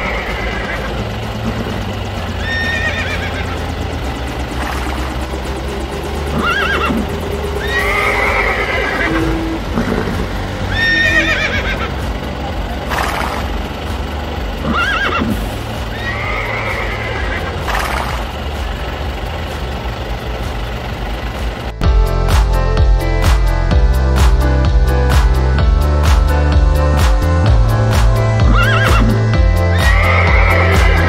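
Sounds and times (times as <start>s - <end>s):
steady low rumble: 0.0s - 31.0s
horse whinnies: 7.6s - 11.9s, 14.6s - 15.4s, 16.0s - 17.9s, 28.5s - 31.0s.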